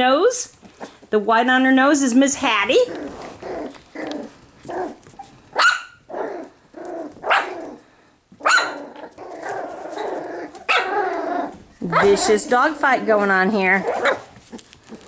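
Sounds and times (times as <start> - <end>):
puppies growling: 2.4 - 15.0
puppies barking: 2.9 - 12.7, 13.7 - 15.0.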